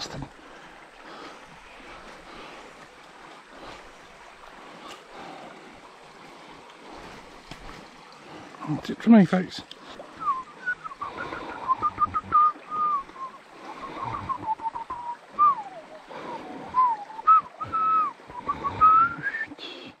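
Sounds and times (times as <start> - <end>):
creek water running: 0.0 - 20.0
person whistling a tune: 10.2 - 15.8, 16.7 - 19.6.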